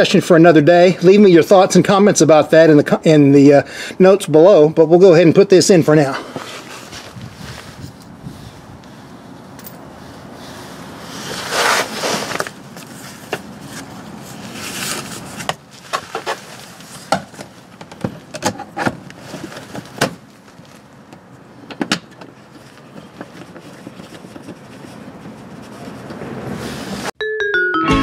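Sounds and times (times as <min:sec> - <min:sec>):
plastic cover scraping: 0:11.1 - 0:17.3.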